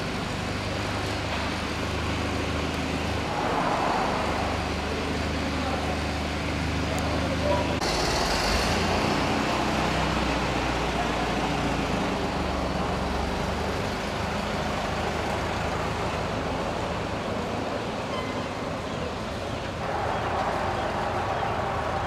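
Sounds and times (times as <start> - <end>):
aircraft engine drone in flight: 0.0 - 10.6.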